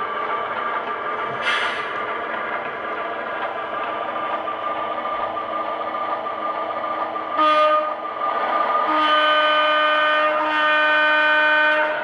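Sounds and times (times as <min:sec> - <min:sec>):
model locomotive engine drone: 0:00.0 - 0:12.0
locomotive horn blast: 0:07.4 - 0:08.0, 0:08.8 - 0:12.0.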